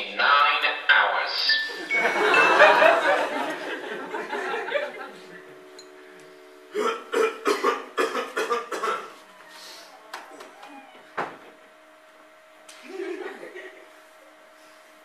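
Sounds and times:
audience laughter: 1.7s - 5.5s, 12.7s - 14.1s.

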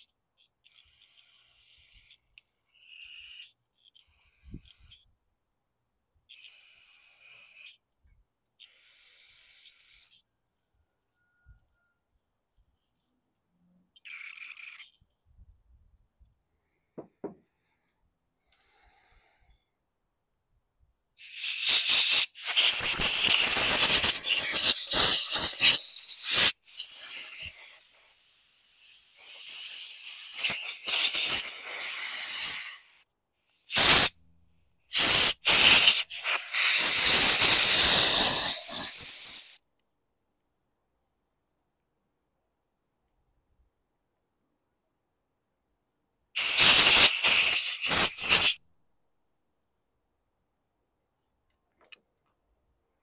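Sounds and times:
hissing air nozzle blasts: 21.2s - 33.0s, 33.7s - 34.1s, 34.9s - 39.6s, 46.4s - 48.6s.

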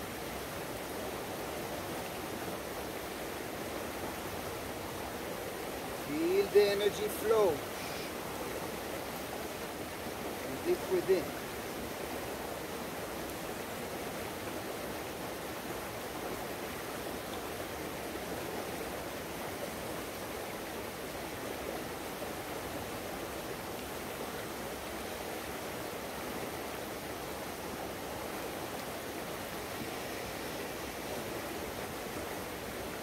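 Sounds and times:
river water rushing: 0.0s - 33.0s.

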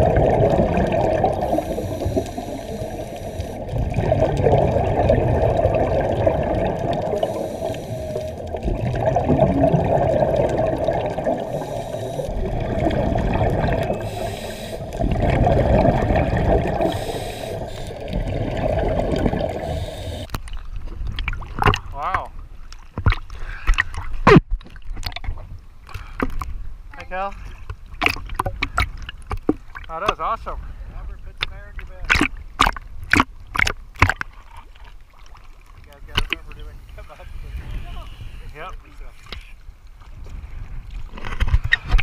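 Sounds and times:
underwater scuba exhaust bubbles: 0.0s - 20.4s.

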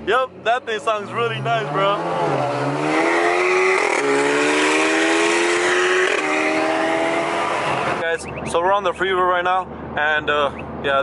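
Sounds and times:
road and wind noise: 0.0s - 11.0s
car engine revving through gears: 1.1s - 8.0s.

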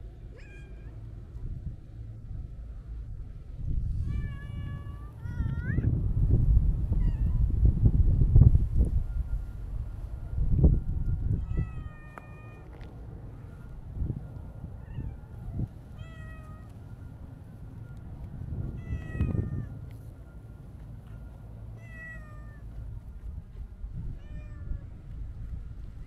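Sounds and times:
cat meowing: 0.3s - 0.9s, 21.8s - 22.6s, 24.2s - 24.9s.

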